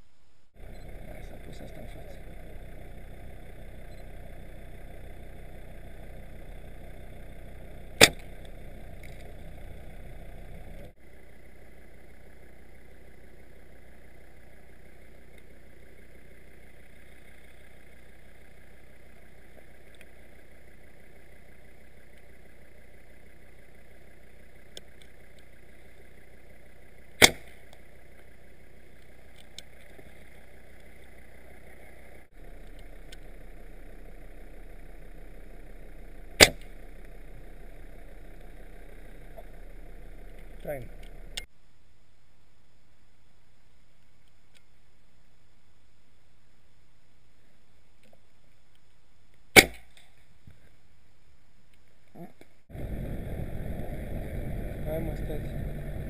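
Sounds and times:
dart rifle shots: 8.0 - 8.3, 27.2 - 27.6, 36.4 - 36.7, 49.5 - 50.0.

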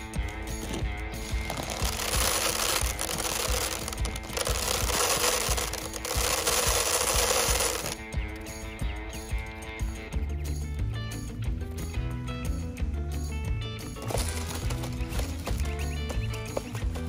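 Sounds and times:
seeds pouring into plastic bowl: 1.2 - 8.0, 14.0 - 15.6.

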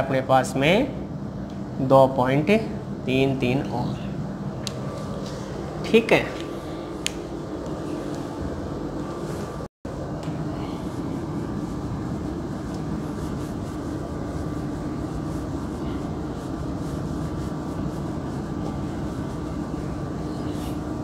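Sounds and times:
steady machine hum: 0.0 - 21.0.

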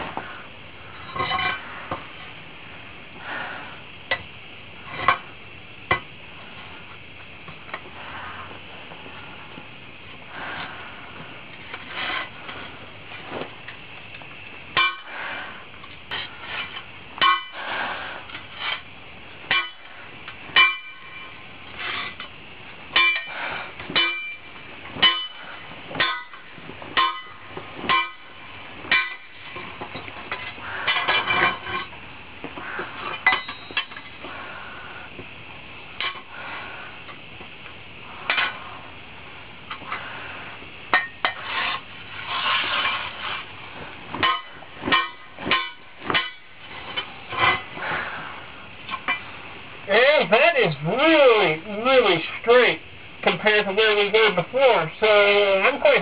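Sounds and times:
hammer clanking on hot metal: 14.7 - 15.2, 16.1 - 17.8, 19.4 - 32.0, 33.0 - 34.2, 40.9 - 41.8, 44.1 - 47.7.

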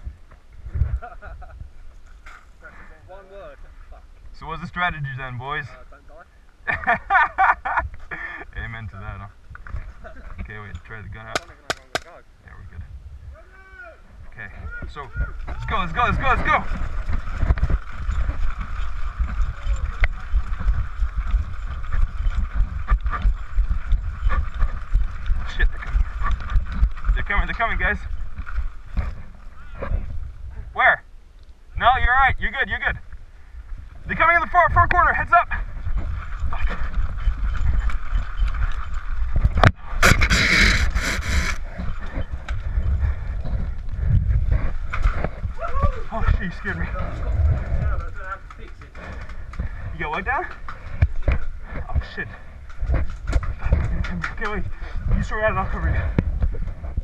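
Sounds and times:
wind buffeting microphone: 0.0 - 2.2, 6.7 - 30.8, 31.6 - 57.0
sharp crack: 11.3 - 12.2
gear knocking: 14.9 - 30.1
camera handling rumble: 39.4 - 42.6.

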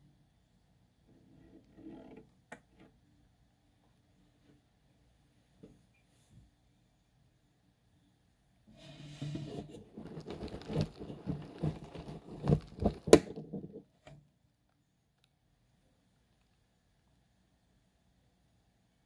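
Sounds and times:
wood shavings rustling: 9.3 - 13.3.

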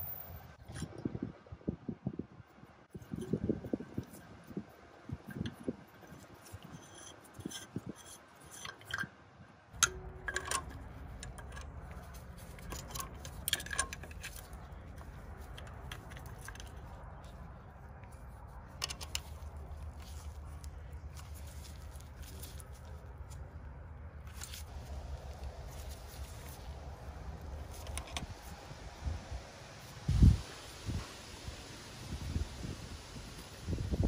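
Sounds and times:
steady low rumble: 9.4 - 34.0
small metal clicks and taps: 9.8 - 16.9, 18.8 - 19.4.

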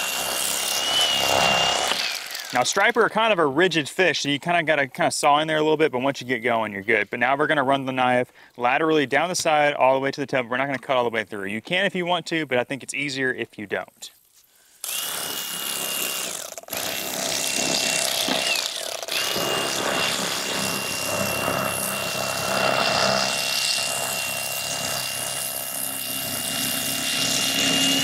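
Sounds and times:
electric knife motor whine: 0.0 - 2.8, 14.8 - 28.0.

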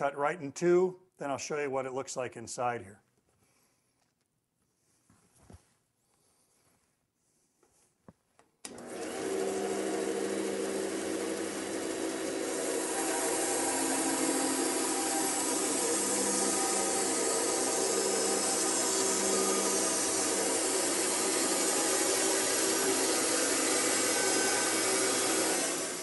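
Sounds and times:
bandsaw cutting log: 8.7 - 26.0
saw motor hum: 8.7 - 26.0.

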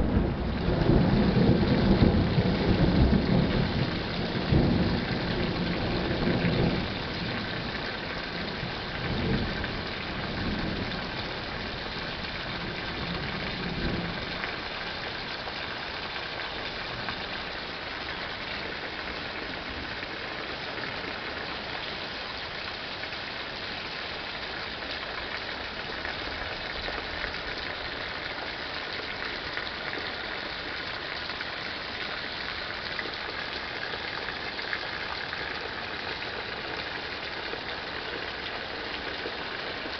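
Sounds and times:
thunder rumbling: 0.0 - 14.7
steady rain falling: 0.0 - 39.9.

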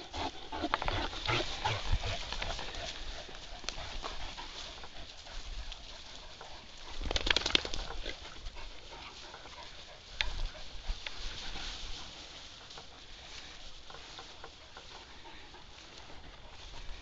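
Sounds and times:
dog breathing: 7.8 - 17.0.

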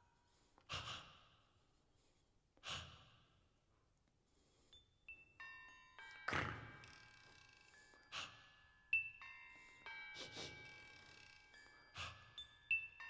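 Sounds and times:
glockenspiel bars ringing: 4.6 - 13.0.

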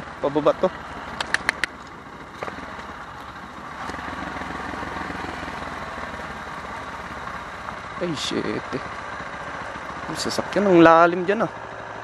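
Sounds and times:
motorcycle engine running: 0.0 - 12.0
sharp clicks: 1.1 - 2.9.

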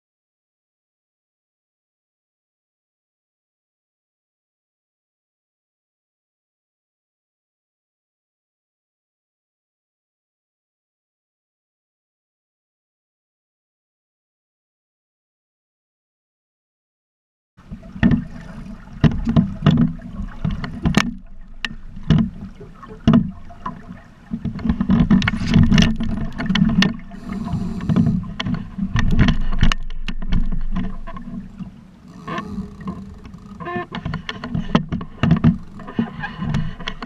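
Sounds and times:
water slapping against hull: 17.6 - 37.0
wind rumbling on microphone: 24.4 - 37.0
knocks and thumps: 24.7 - 30.9, 32.1 - 37.0.

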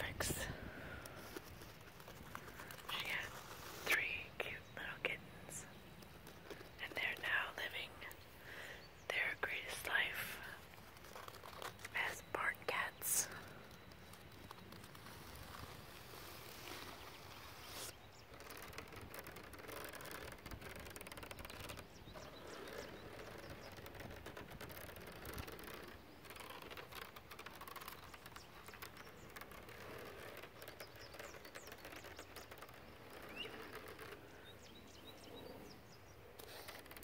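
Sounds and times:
fingernails scratching mesh net: 10.4 - 11.8, 12.7 - 34.4, 36.4 - 37.0
faint bird chirps: 11.8 - 15.8, 27.6 - 36.6.

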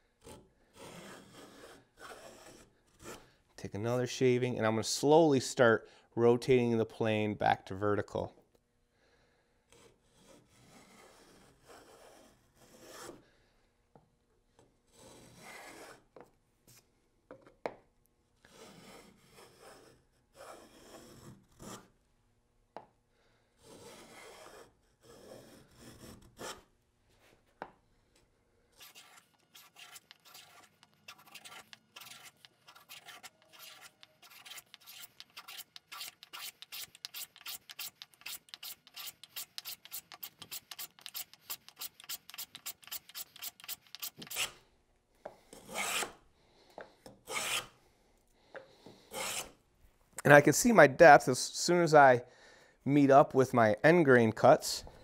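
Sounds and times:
hand plane rasping wood: 28.8 - 44.6, 45.6 - 46.2, 47.3 - 47.7, 49.1 - 49.6.

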